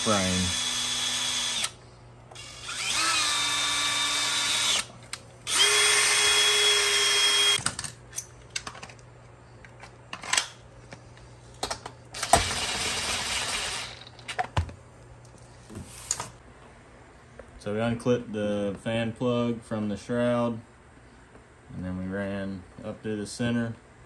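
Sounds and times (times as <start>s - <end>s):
cordless drill whining: 0.0s - 1.8s, 2.4s - 4.9s, 5.5s - 7.6s, 12.2s - 13.9s.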